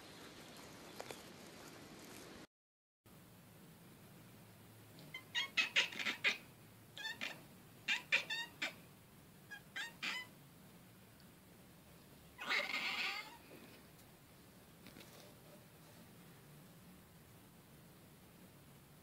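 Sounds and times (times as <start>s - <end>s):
cat chirping meow: 5.0s - 6.4s, 7.0s - 8.8s, 9.5s - 10.4s, 12.4s - 13.4s
cat chattering chirps: 5.0s - 8.8s, 9.5s - 10.3s, 12.4s - 13.4s.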